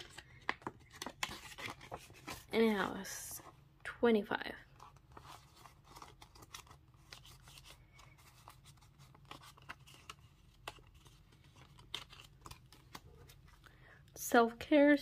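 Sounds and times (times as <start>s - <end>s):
plastic envelope crinkling: 0.0s - 3.1s, 4.7s - 13.7s.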